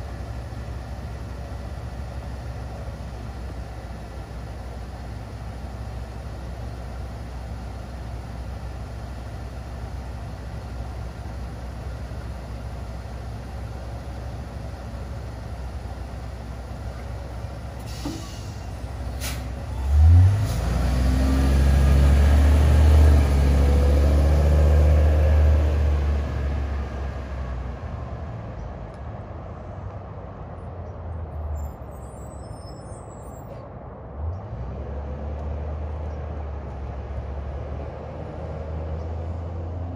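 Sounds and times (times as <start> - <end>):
bus engine: 0.0 - 39.9
air brake click: 17.8 - 19.5
air brakes hissing: 17.8 - 19.6.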